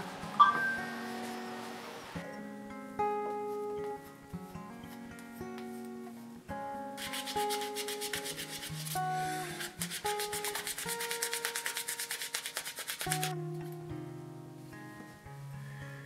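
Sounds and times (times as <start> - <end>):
acoustic guitar music: 0.0 - 16.0
cloth rubbing on wood: 7.0 - 13.3.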